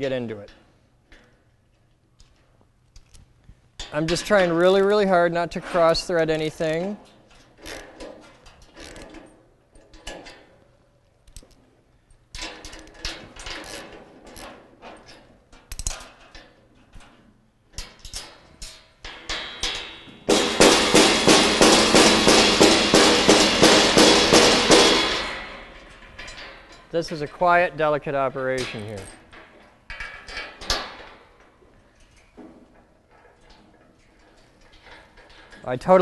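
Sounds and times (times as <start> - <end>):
hammer blows on steel frame: 20.2 - 25.7.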